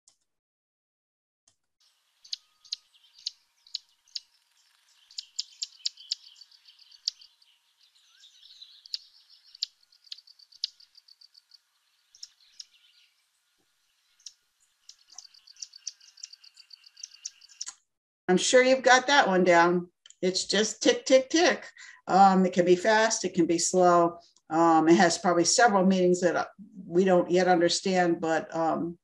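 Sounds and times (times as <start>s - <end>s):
faint bird chatter: 1.8s - 17.7s
bird tick calls: 2.2s - 7.4s, 8.1s - 12.8s, 14.2s - 17.8s.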